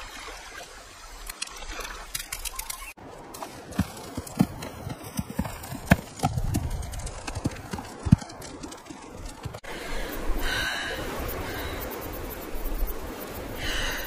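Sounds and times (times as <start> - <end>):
steady rustling ambience: 2.3 - 14.0
footsteps on stony ground: 3.0 - 9.7
goat hooves on stony ground: 3.3 - 9.7.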